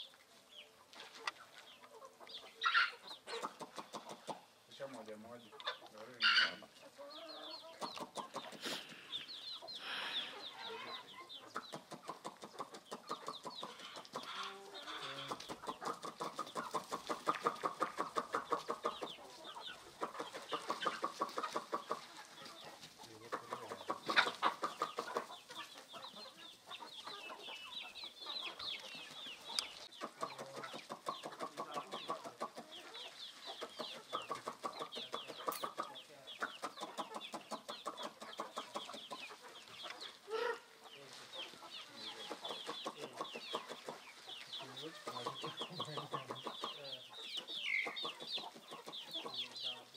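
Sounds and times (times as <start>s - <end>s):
chickens clucking: 0.0s - 49.9s
loud chicken calls: 2.4s - 4.6s, 6.2s - 40.8s.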